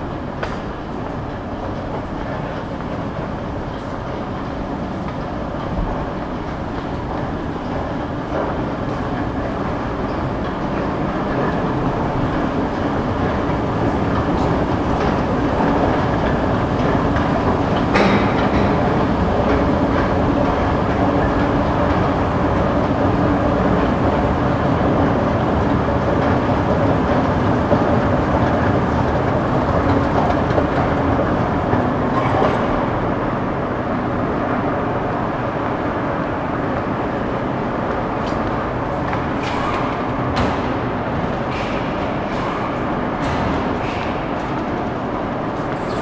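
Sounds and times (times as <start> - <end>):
escalator rumble and clatter: 0.0 - 46.0.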